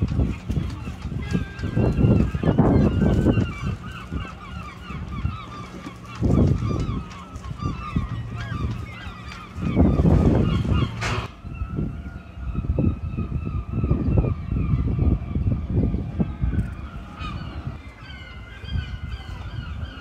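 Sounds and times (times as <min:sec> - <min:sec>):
flock of birds calling: 0:00.0 - 0:20.0
low rumbling bursts: 0:00.0 - 0:20.0.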